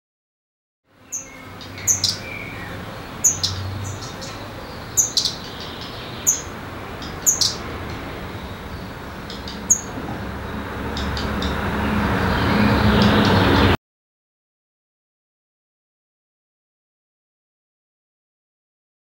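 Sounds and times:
small songbird chirping: 0:01.1 - 0:13.7.

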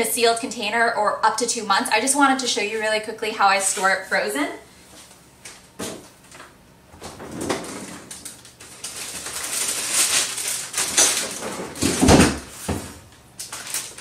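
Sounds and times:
rustling and clattering of bags: 0:07.0 - 0:14.0.

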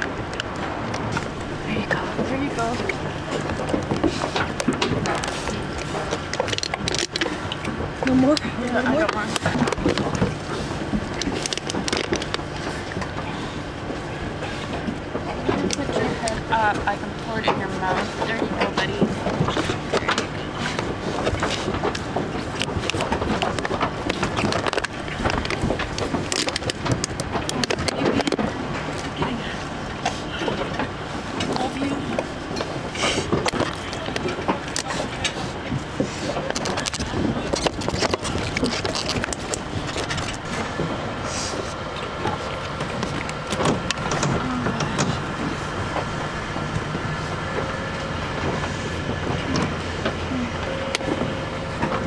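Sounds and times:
pig drinking: 0:00.0 - 0:52.0
truck engine idling: 0:00.0 - 0:52.0
plastic bottle crinkling: 0:36.5 - 0:40.5.

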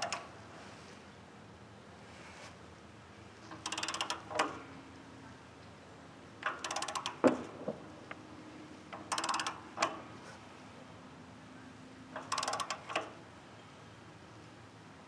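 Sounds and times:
torque wrench ratchet clicking: 0:03.5 - 0:04.5, 0:06.4 - 0:07.3, 0:09.0 - 0:10.0, 0:12.2 - 0:13.1.

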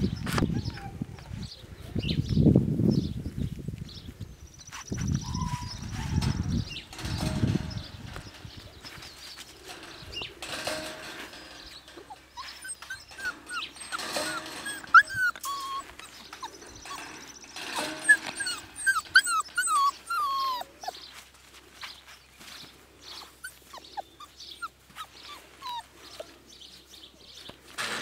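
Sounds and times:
puppies whining in high squeaks: 0:05.1 - 0:07.6, 0:09.8 - 0:21.2, 0:23.4 - 0:26.3.

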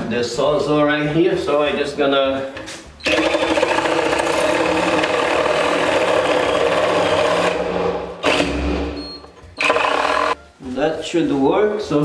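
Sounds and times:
reciprocating saw cutting wood: 0:03.1 - 0:08.6.

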